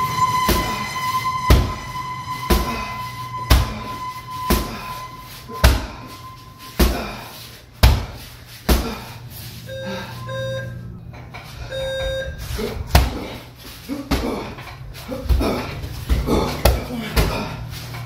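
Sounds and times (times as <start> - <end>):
timer short beeps: 9.7 - 10.9, 11.6 - 12.4.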